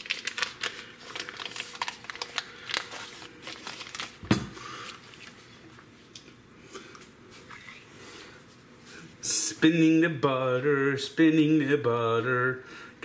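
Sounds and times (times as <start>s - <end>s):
paper wrapper crinkling and tearing: 0.0s - 4.2s.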